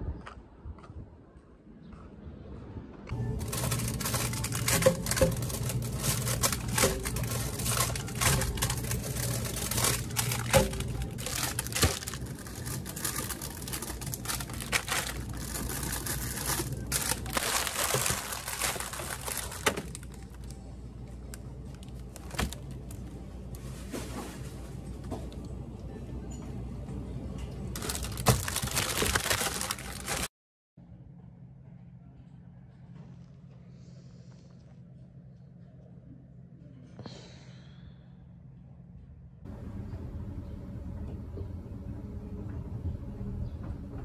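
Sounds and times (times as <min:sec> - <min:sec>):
freezer low hum: 0:02.9 - 0:44.0
plastic wrappers crinkling: 0:03.2 - 0:23.2, 0:27.7 - 0:30.3.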